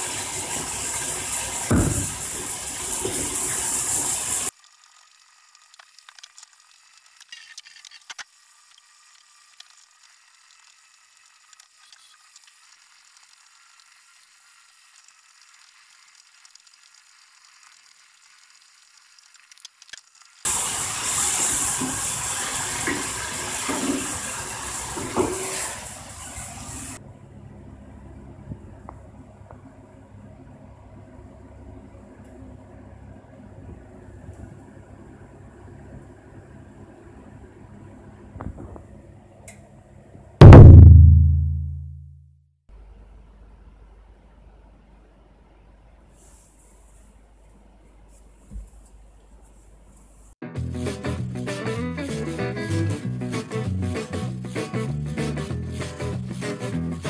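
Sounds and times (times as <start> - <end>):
food sizzling in a frying pan: 0.0 - 5.7, 12.1 - 27.0.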